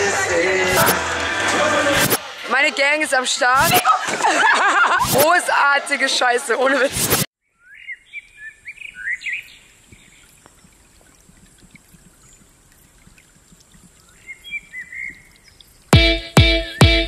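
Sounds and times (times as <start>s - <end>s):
electronic dance music: 0.0s - 3.8s
birds chirping: 7.4s - 16.0s
faint outdoor hiss: 7.5s - 16.0s.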